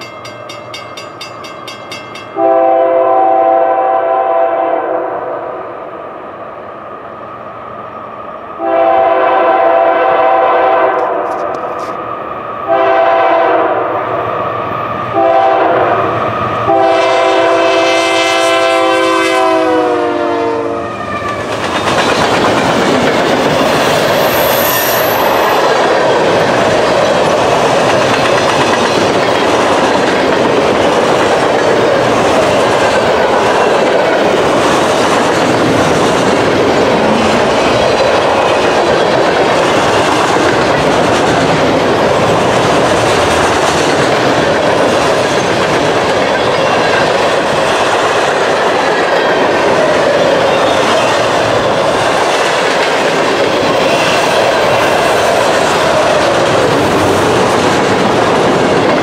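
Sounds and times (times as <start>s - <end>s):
train cars rumbling and clacking: 0.0s - 4.4s, 8.6s - 59.0s
locomotive air horn blasts: 2.4s - 5.2s, 8.6s - 11.3s, 12.7s - 14.0s, 15.2s - 21.0s.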